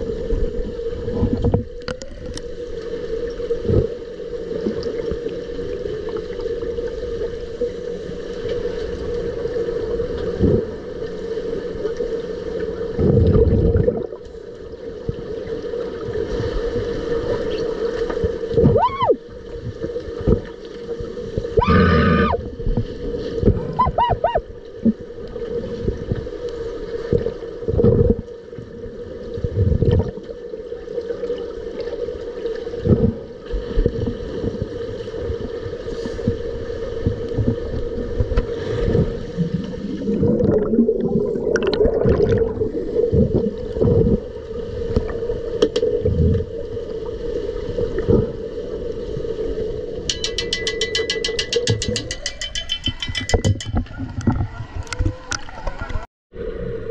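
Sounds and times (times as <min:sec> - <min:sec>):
bubbling and gurgling water: 0:00.0 - 0:56.9
underwater hum: 0:00.0 - 0:56.9
underwater knocks and thumps: 0:20.2 - 0:20.6, 0:50.0 - 0:56.0.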